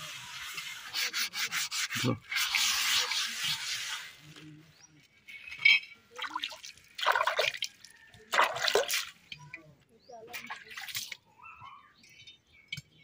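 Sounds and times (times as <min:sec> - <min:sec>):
knife scraping iron griddle: 0:00.0 - 0:04.2
hands splashing water in bucket: 0:06.2 - 0:09.3, 0:10.3 - 0:11.2.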